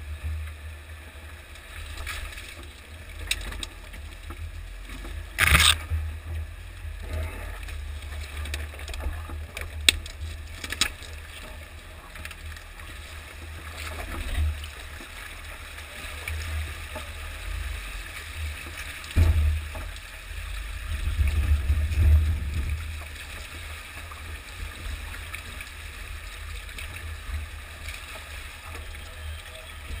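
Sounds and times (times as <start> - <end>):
vehicle low rumble: 0.0 - 30.0.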